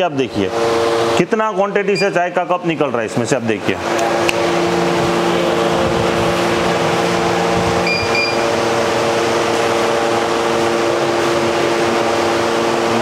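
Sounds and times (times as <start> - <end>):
vending machine motor hum: 0.0 - 13.0
short high beeps: 2.0 - 2.2, 7.8 - 8.4.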